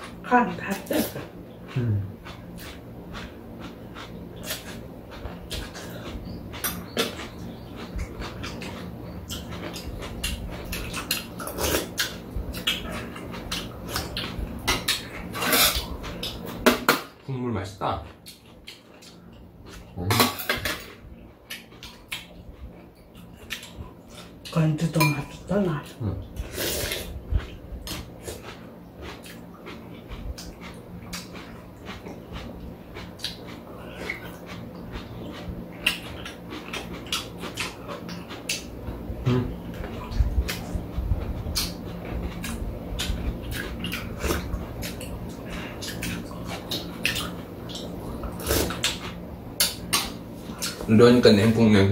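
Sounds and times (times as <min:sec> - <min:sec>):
spoons clinking against bowls: 0:25.0 - 0:25.4
people slurping noodles: 0:26.3 - 0:27.6, 0:48.2 - 0:48.8
slurping: 0:26.3 - 0:29.4.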